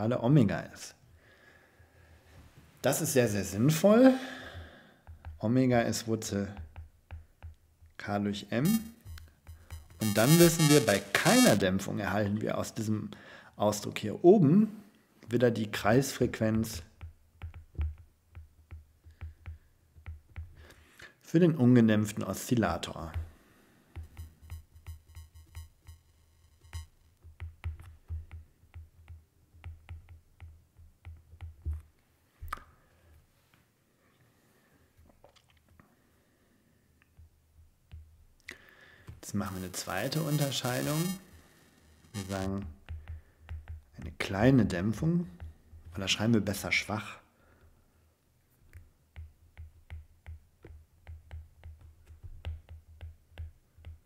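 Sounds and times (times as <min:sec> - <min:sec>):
stylus tapping on glass screen: 0:06.6 - 0:07.6, 0:08.7 - 0:11.0, 0:17.0 - 0:20.6, 0:23.9 - 0:31.8, 0:42.2 - 0:44.1, 0:49.1 - 0:54.0
electrical buzz: 0:08.6 - 0:11.6, 0:39.4 - 0:42.7.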